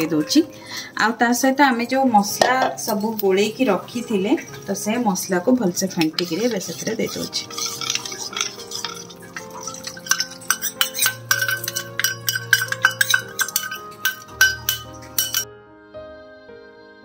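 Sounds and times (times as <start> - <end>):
soft background music: 0.0 - 17.0
spoon scraping steel bowl: 2.4 - 3.4, 5.8 - 15.4.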